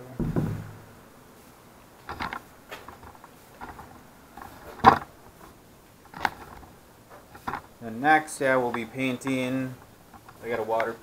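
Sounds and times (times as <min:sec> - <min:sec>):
light clicks and knocks: 0:02.0 - 0:07.8, 0:08.6 - 0:11.0.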